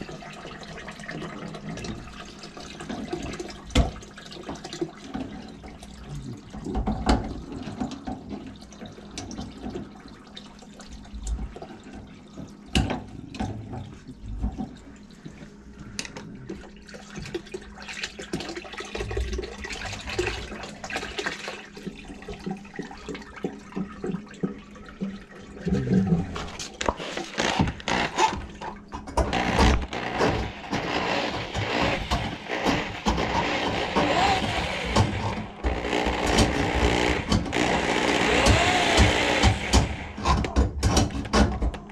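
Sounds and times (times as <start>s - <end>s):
water splashing into plastic bucket: 16.5s - 37.6s.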